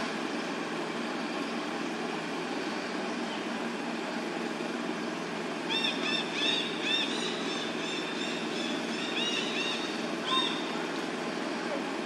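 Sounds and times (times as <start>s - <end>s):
animal chirping calls: 5.7s - 10.7s.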